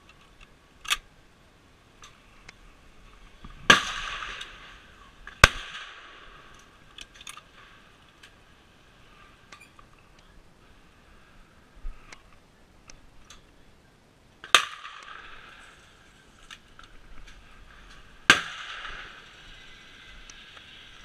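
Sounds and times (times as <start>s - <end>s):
rifle shots with echo: 3.7s - 4.7s, 5.3s - 6.5s, 18.2s - 19.3s
faint clicks: 12.0s - 13.6s.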